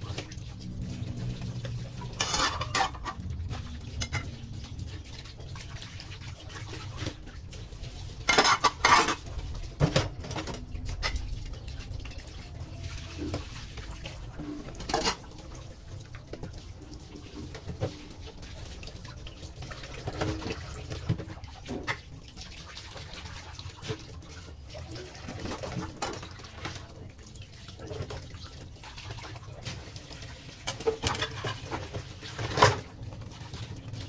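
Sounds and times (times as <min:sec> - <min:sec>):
tap water pouring into sink: 0:00.0 - 0:34.0
dishes clattering in sink: 0:02.0 - 0:04.4, 0:08.2 - 0:11.3, 0:14.4 - 0:15.4, 0:30.6 - 0:33.0.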